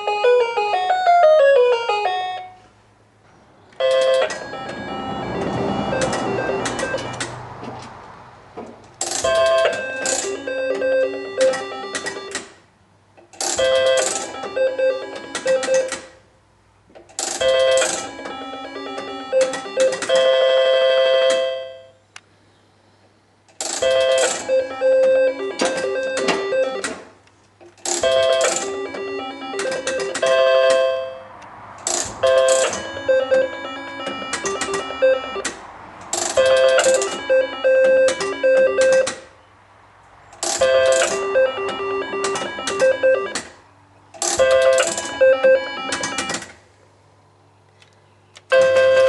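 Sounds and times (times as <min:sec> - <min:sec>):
electronic beeping tune: 0:03.8 - 0:07.4, 0:09.3 - 0:12.4, 0:13.6 - 0:15.9, 0:23.8 - 0:26.8, 0:28.0 - 0:31.2, 0:32.2 - 0:35.5, 0:36.4 - 0:39.2, 0:40.6 - 0:43.4, 0:44.4 - 0:46.4
slot machine spin clack: 0:13.5 - 0:16.1, 0:17.2 - 0:20.2, 0:40.5 - 0:43.5.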